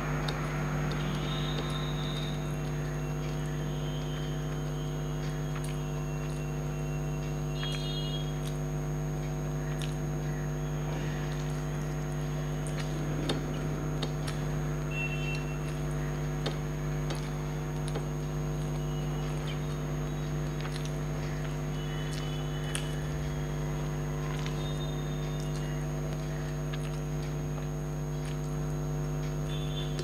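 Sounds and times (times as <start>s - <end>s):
high chirps: 0.0s - 8.5s
steady low hum: 0.0s - 30.0s
clicks and smacks of chewing: 0.1s - 30.0s.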